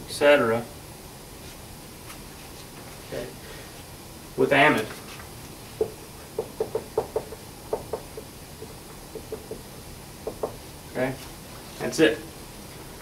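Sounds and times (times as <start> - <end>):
marker tapping and scratching on whiteboard: 5.8 - 9.6, 10.2 - 10.6.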